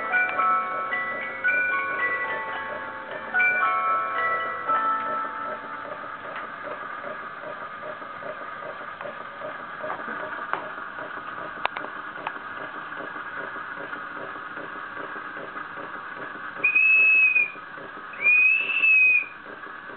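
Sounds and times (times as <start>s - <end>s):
toy steam engine hissing and beating: 13.6s - 19.9s
steam whistle toots: 16.6s - 17.6s, 18.2s - 19.4s.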